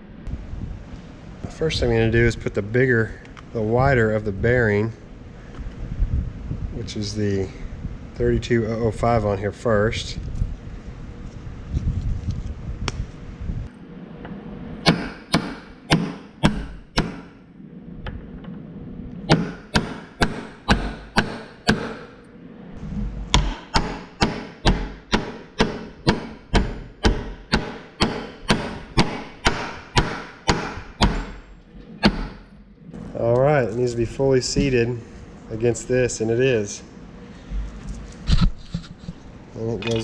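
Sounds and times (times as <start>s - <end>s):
hammer striking metal: 14.8s - 17.4s, 19.3s - 22.2s, 23.3s - 31.4s, 32.0s - 32.5s.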